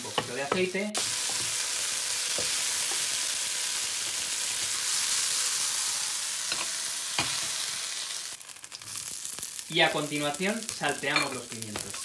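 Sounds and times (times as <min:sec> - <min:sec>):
chicken sizzling in hot oil: 0:00.0 - 0:12.0.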